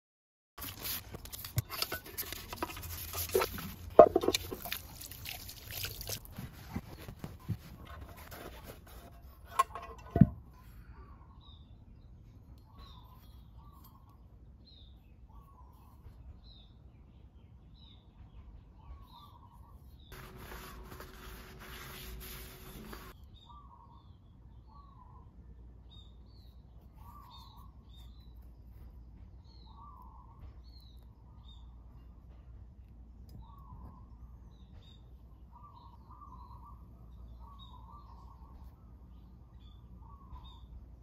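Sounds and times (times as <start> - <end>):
wet scrubbing on metal: 20.2 - 23.2
faint bird chirps: 23.1 - 32.1, 33.3 - 40.8.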